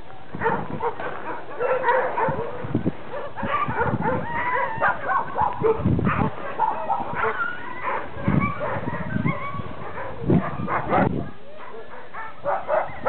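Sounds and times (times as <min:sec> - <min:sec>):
huskies barking: 0:00.1 - 0:13.0
wavering high dog calls: 0:03.2 - 0:11.1.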